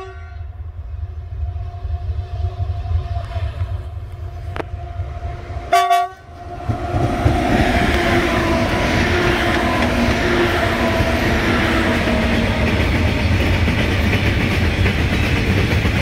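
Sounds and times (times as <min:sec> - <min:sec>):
train horn toot: 0:00.0 - 0:00.6, 0:01.3 - 0:13.3
locomotive hum: 0:00.0 - 0:16.0
locomotives rumbling past: 0:00.7 - 0:16.0.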